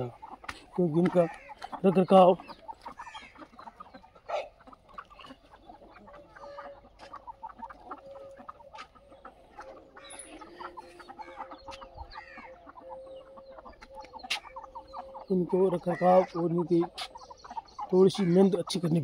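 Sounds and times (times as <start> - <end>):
chickens clucking: 0.0 - 19.0.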